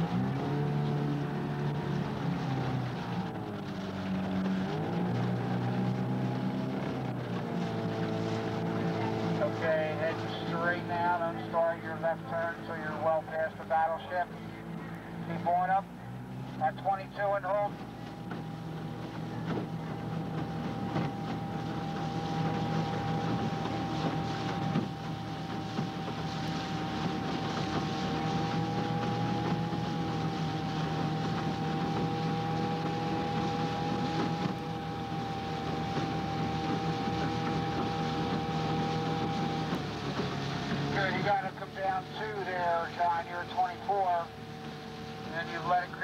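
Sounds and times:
outboard motor droning: 0.0 - 46.0
wind and water rushing: 0.0 - 46.0.

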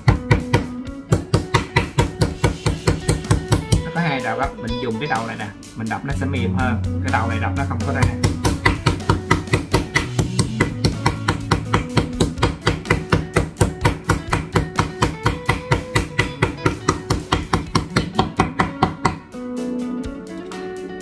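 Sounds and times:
meat mallet pounding meat: 0.0 - 3.9, 8.0 - 19.3.

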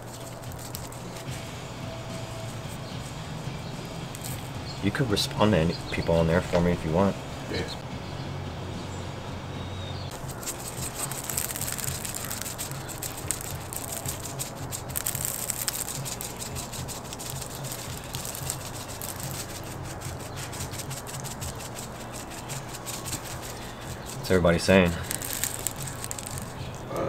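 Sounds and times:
shaker bottle rattling: 0.0 - 1.3, 4.2 - 4.6, 10.1 - 26.9
steady low hum: 0.0 - 27.0.

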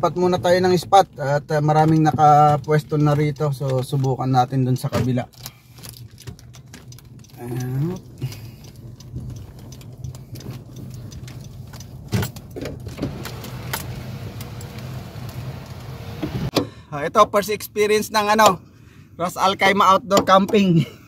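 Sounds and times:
car engine running: 0.0 - 16.7.

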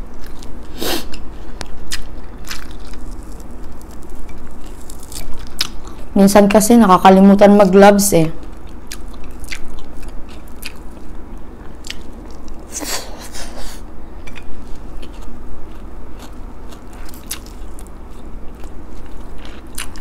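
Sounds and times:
person chewing food: 0.1 - 6.1, 8.4 - 20.0
crunchy rustle: 1.4 - 5.6.

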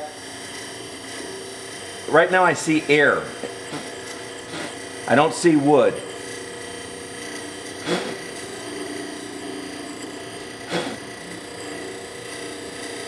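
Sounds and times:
wood lathe running: 0.0 - 13.0
tool scraping wood: 3.3 - 5.1, 7.7 - 9.2, 9.9 - 12.6.

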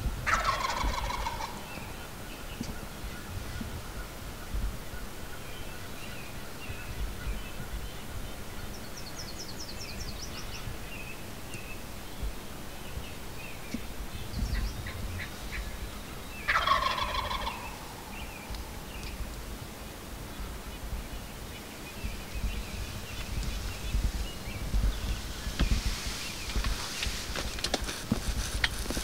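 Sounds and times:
turkey gobbling: 0.2 - 1.7, 16.5 - 18.7.

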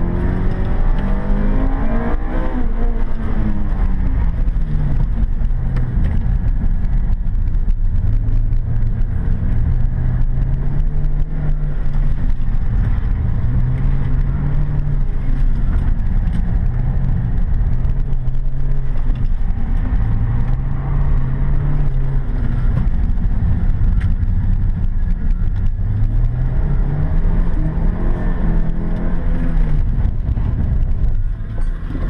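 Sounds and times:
car engine revving: 0.0 - 32.0
heavy low rumble: 0.0 - 32.0.

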